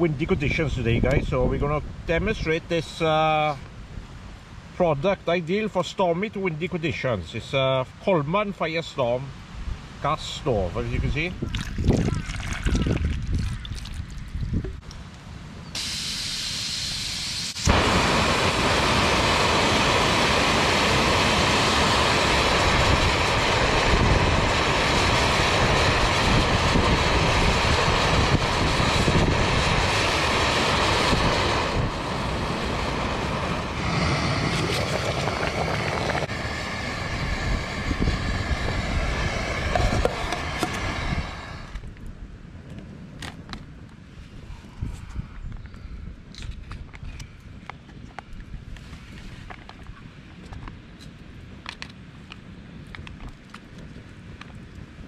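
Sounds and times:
gas burner roaring: 0:14.2 - 0:42.1
gas hiss: 0:15.6 - 0:41.9.

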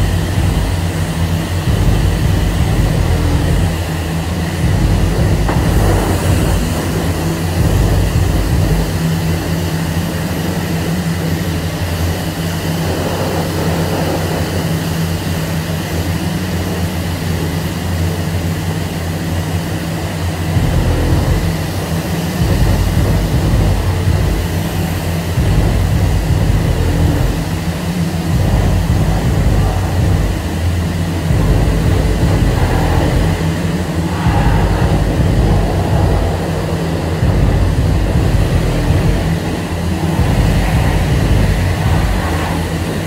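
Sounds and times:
loud low equipment drone: 0:00.0 - 0:43.0
pressure wand spraying water: 0:04.6 - 0:08.8.

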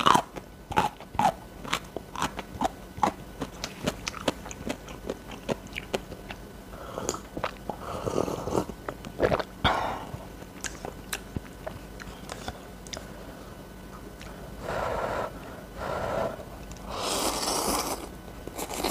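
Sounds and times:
chewing: 0:00.0 - 0:06.4, 0:07.0 - 0:09.5, 0:10.2 - 0:13.1
slurping noodles: 0:16.2 - 0:18.9.

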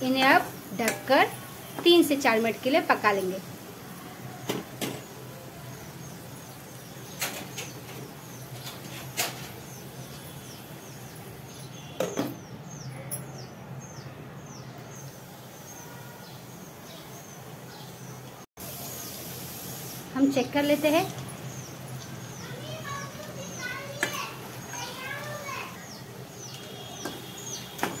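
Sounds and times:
small bird chirping: 0:20.3 - 0:28.0.

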